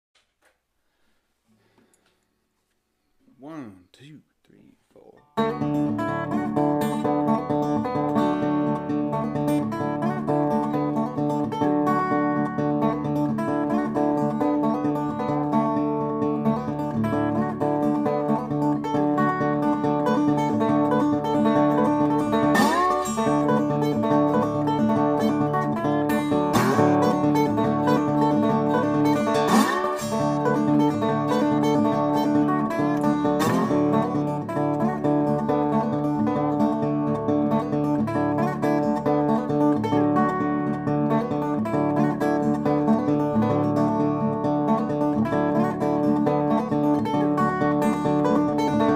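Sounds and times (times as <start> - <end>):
acoustic guitar music: 3.4 - 48.9
rising guitar slide notes: 16.5 - 44.1.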